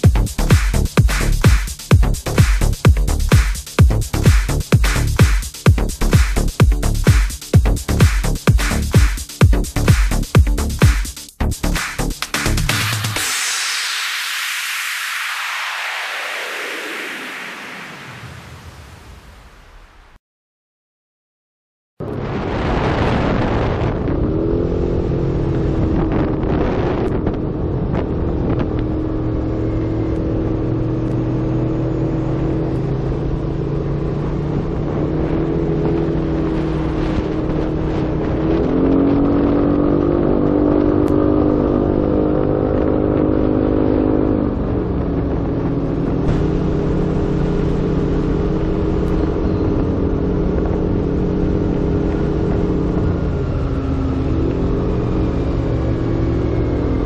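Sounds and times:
scooter engine running: 44.2s - 57.0s.

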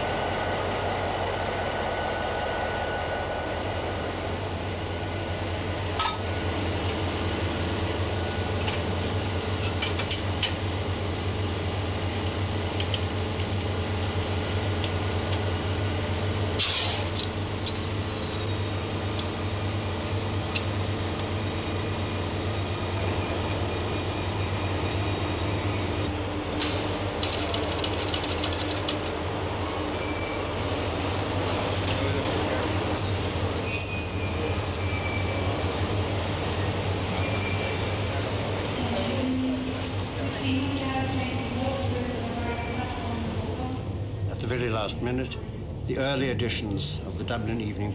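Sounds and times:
diesel locomotive idling: 0.0s - 47.9s
brief high squeal: 32.7s - 42.2s.

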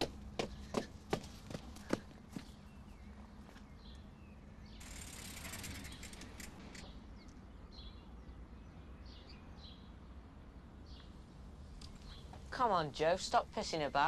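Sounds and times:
faint birds chirping: 0.0s - 14.0s
low steady outdoor rumble: 0.0s - 14.0s.

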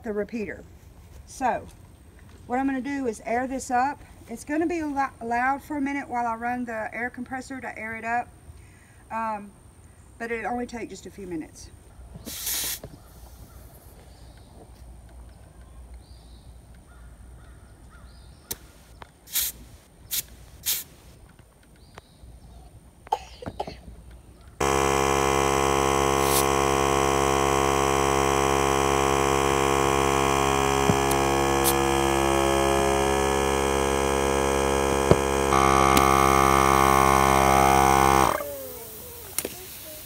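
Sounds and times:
air compressor running: 24.6s - 40.0s.

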